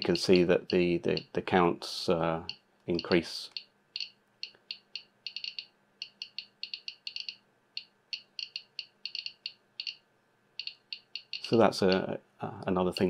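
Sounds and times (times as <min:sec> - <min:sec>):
geiger counter beeping: 0:02.4 - 0:10.0, 0:10.6 - 0:12.1.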